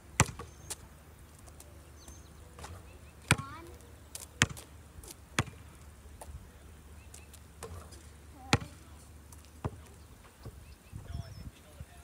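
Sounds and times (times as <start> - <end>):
basketball bouncing on asphalt: 0.0 - 0.8, 1.4 - 6.4, 7.0 - 10.7.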